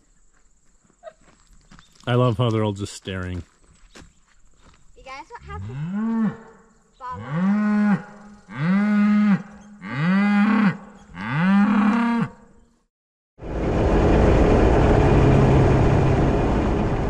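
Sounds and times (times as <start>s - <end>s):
cows mooing: 5.4s - 12.5s.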